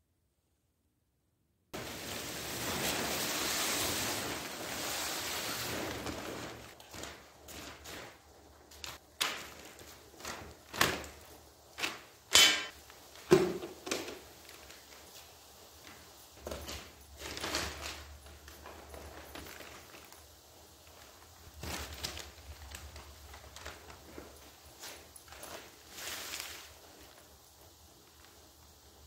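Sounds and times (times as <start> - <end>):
footsteps on tarp: 1.8 - 17.4, 18.6 - 28.5
soft rustling: 1.8 - 29.0
tools knocking on floor: 12.3 - 14.2.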